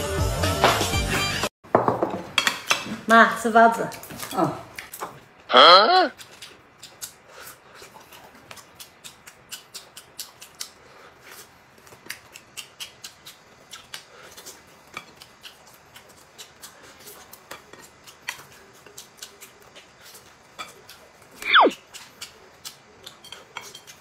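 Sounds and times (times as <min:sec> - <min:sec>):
chewing mouth clicks and smacks: 0:06.2 - 0:24.0.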